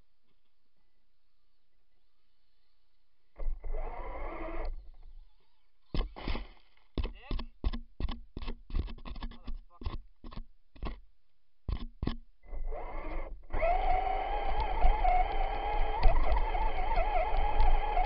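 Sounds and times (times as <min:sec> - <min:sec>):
rc truck motor revving: 0:03.4 - 0:05.4, 0:12.4 - 0:18.0.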